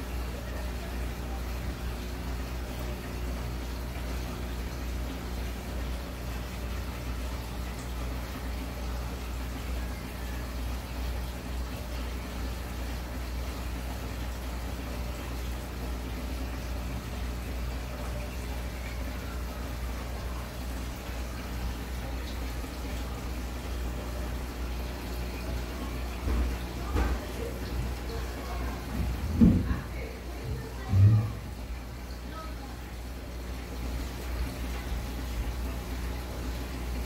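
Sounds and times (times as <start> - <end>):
aquarium filter hum: 0.0 - 37.0
water bubbling and trickling: 0.0 - 37.0.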